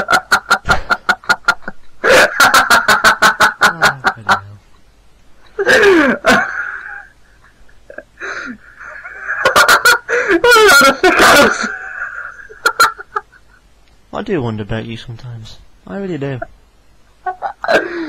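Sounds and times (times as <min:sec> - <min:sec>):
men laughing: 0:00.0 - 0:04.8, 0:05.4 - 0:13.7, 0:17.1 - 0:18.0.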